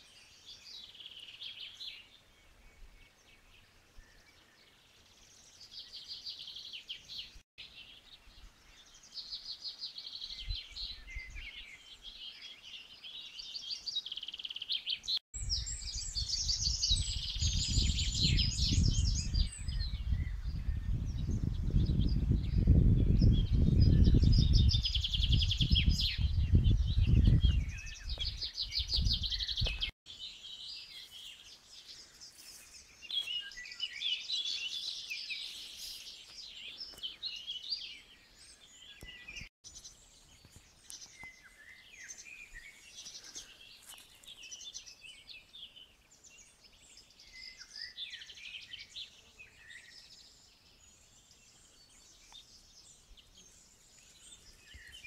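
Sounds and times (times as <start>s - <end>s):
songbirds singing: 0.0s - 55.0s
wind buffeting microphone: 15.4s - 29.9s.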